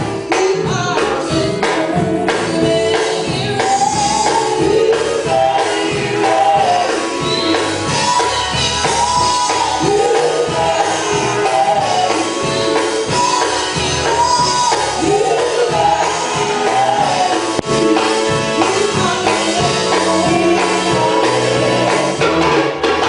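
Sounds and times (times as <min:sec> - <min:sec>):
band with drums: 0:00.0 - 0:23.0
gospel group singing in harmony: 0:00.0 - 0:23.0.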